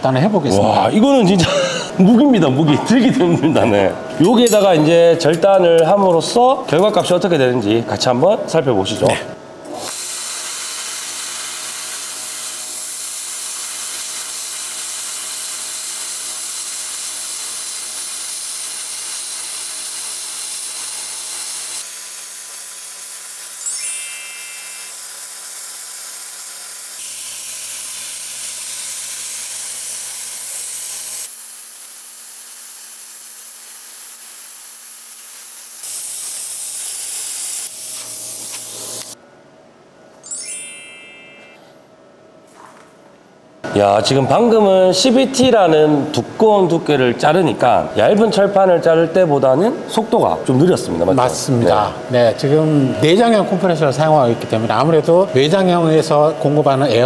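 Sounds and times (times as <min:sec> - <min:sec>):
air compressor hum: 0:00.0 - 0:40.2
plasma cutter hissing: 0:09.7 - 0:39.2.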